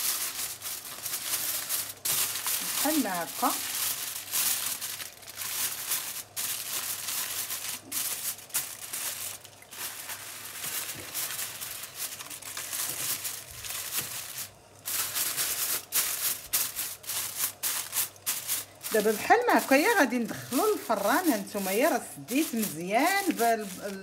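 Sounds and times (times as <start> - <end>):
aluminium foil crinkling: 0.0 - 24.0.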